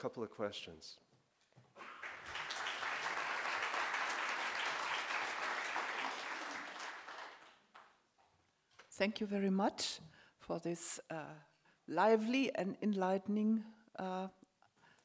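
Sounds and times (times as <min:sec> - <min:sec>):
audience applauding: 0:01.8 - 0:08.0.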